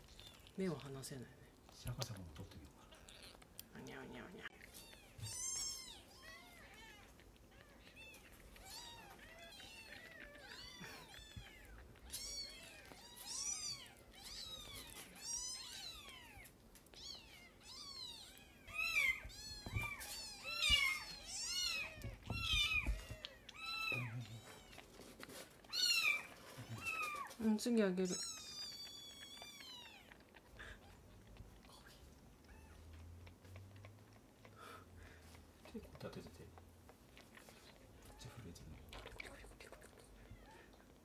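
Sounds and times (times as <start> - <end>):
kittens mewing: 2.8 - 25.0, 25.6 - 27.4.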